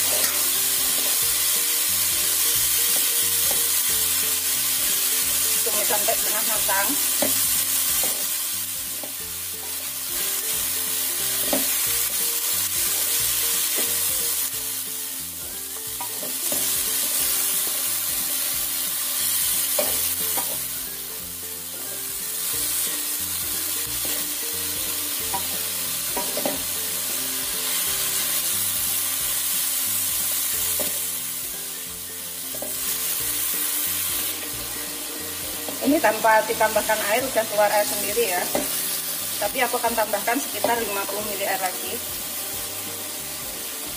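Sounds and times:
spatula scraping a pan: 0.0 - 1.4
vegetables sizzling in a wok: 0.0 - 43.9.

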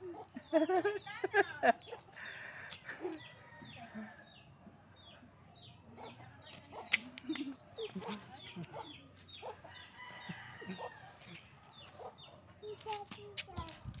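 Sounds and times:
chickens clucking: 6.0 - 13.1.

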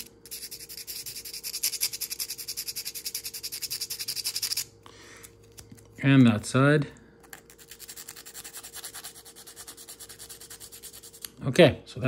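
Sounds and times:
sandpaper rubbing by hand: 7.6 - 11.2.

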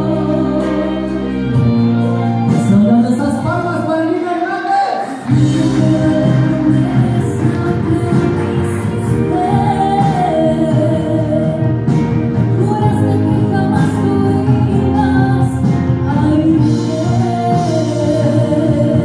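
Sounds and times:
woman singing: 0.0 - 1.8, 5.3 - 19.0
instrumental accompaniment: 5.2 - 19.0.

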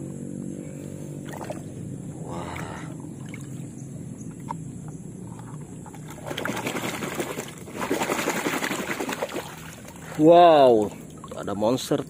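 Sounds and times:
muddy water splashing: 1.2 - 3.7, 5.4 - 12.0.

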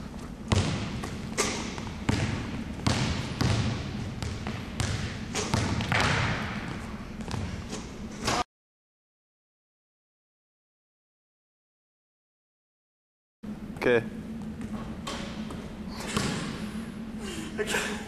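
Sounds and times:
basketball bouncing on hardwood floor: 0.5 - 7.6.

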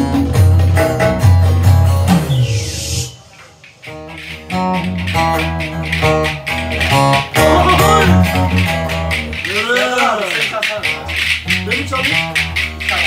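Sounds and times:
spoons clacking: 3.1 - 13.0
plucked and strummed lute: 3.8 - 13.0.

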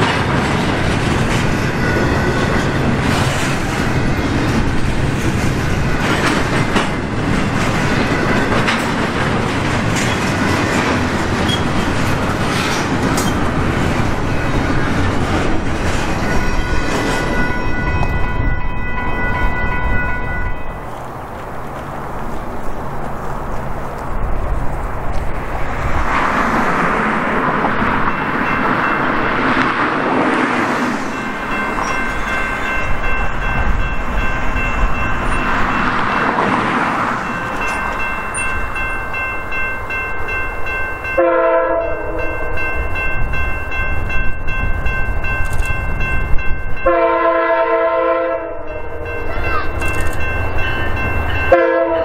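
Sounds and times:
diesel locomotive rumbling: 0.0 - 52.0
train horn blasts: 16.2 - 20.9, 41.2 - 42.4, 46.8 - 49.7, 51.5 - 52.0.

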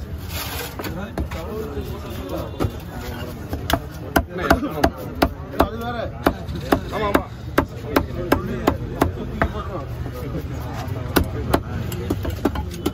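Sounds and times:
knife chopping fish on wood: 3.5 - 9.6, 11.0 - 12.9.

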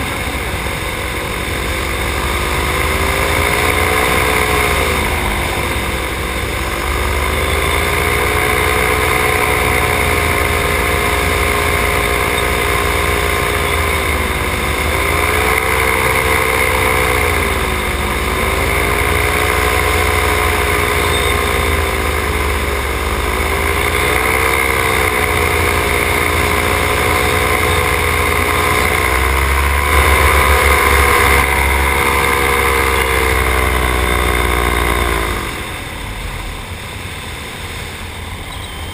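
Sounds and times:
paramotor engine and propeller: 0.0 - 38.9.

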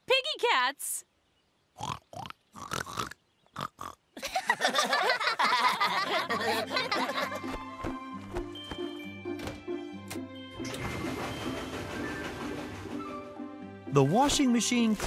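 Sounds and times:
voices laughing together: 4.2 - 7.6
music cue: 6.4 - 14.8.

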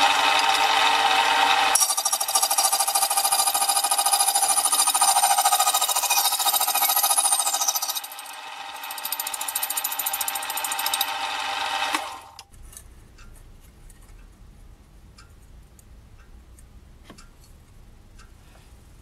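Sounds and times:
saw cutting through metal: 0.0 - 12.4.

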